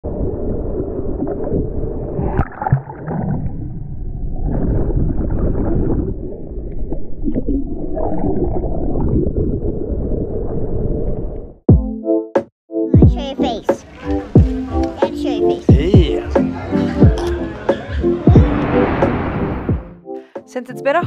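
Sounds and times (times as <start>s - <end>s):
muffled waves sloshing: 16.3s - 20.0s.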